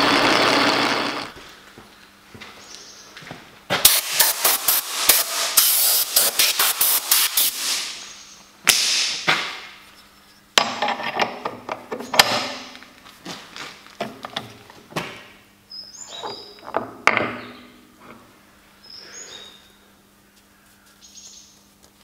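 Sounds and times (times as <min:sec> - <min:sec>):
compressed-air blow gun blasting: 0:03.8 - 0:08.1.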